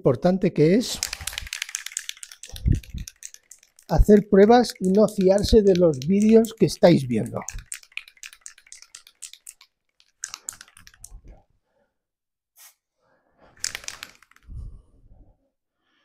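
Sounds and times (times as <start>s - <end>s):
spray can hissing: 0.8s - 11.2s
spray can spitting: 0.8s - 11.2s.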